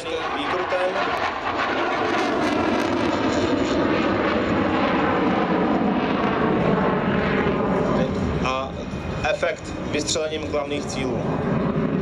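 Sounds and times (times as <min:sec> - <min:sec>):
jet engine rushing: 0:00.0 - 0:12.0.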